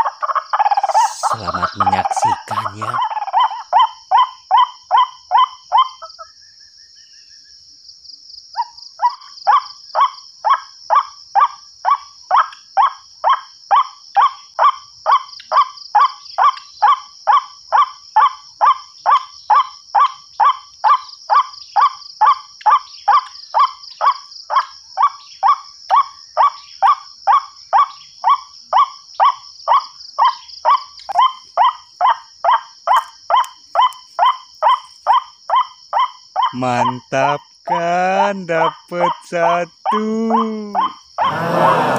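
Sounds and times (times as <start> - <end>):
harsh bird call through loudspeaker: 0.6 - 3.6, 36.5 - 41.9.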